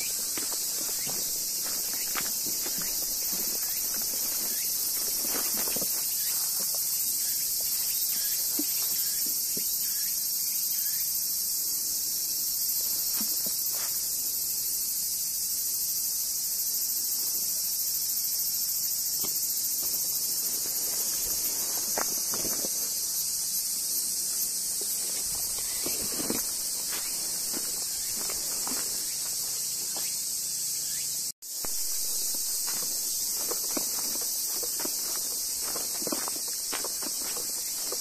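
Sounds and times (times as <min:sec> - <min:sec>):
soft footsteps on a path: 0:00.0 - 0:09.9, 0:12.7 - 0:14.1, 0:19.6 - 0:23.2, 0:24.2 - 0:30.3, 0:31.5 - 0:38.0
high-pitched insect drone: 0:00.0 - 0:38.0.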